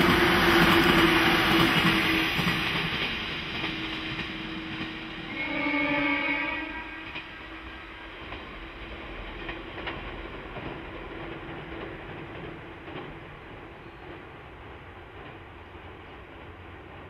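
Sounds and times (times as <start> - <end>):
train wheel and rail rumble: 0.0 - 17.0
wheels clacking over rail joints: 8.2 - 17.0.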